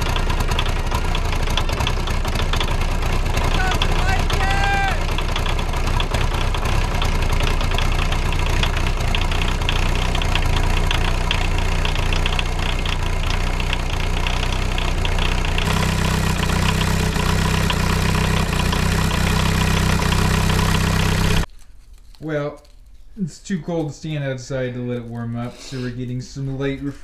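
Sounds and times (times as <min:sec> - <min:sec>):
diesel engine idling with clatter: 0:00.0 - 0:21.5.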